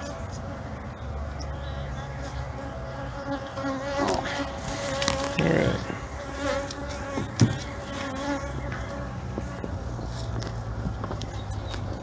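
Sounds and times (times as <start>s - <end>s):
bees buzzing: 0.0s - 10.0s
brush rustling: 3.9s - 10.8s.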